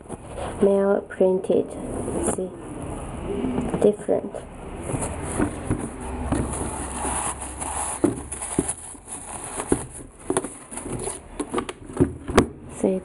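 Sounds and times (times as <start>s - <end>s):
rustling: 4.7s - 12.3s
sneakers tapping and knocking: 8.0s - 8.8s.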